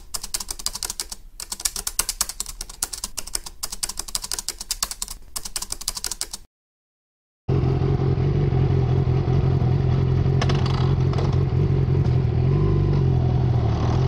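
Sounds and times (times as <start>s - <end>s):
keyboard typing clicks: 0.0s - 6.5s.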